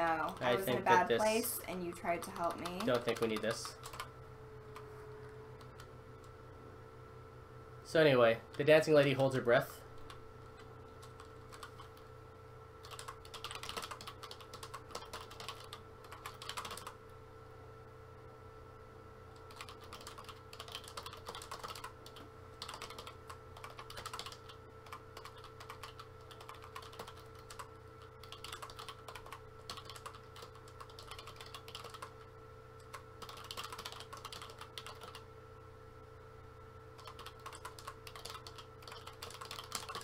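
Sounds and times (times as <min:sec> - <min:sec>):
faint electrical hum: 0:00.0 - 0:40.0
keyboard typing: 0:01.8 - 0:04.1, 0:10.0 - 0:12.1, 0:12.8 - 0:17.0, 0:19.4 - 0:32.2, 0:32.8 - 0:35.3, 0:37.0 - 0:40.0.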